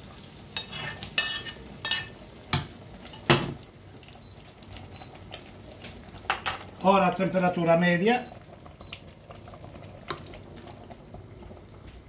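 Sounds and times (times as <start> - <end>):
faint sizzle of cooking food: 0.0 - 12.0
spoon scraping a cooking pan: 0.6 - 2.2.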